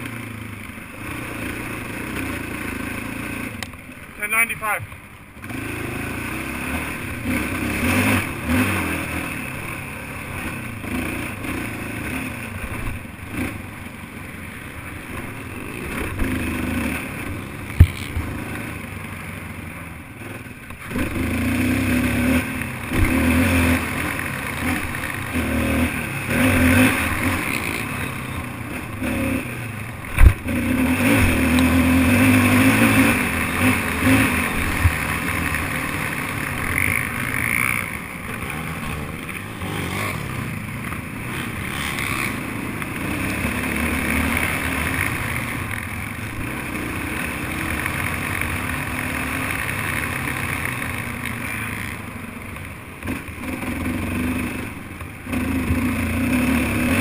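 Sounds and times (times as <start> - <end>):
quad engine revving: 1.0 - 4.8, 5.4 - 13.6, 15.0 - 18.8, 20.2 - 52.2, 53.0 - 57.0.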